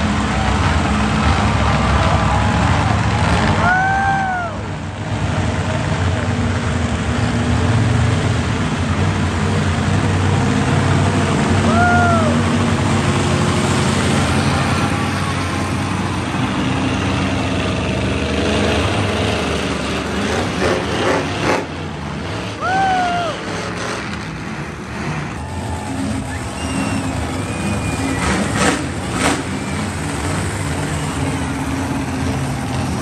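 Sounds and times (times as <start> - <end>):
monster truck engines running: 0.0 - 33.0
whistle-like tone: 26.2 - 30.1.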